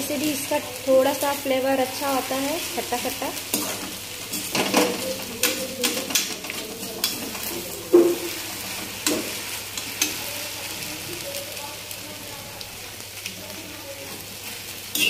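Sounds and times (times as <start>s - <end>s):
frying sizzle: 0.0s - 15.0s
metal spatula scraping pan: 3.4s - 10.2s.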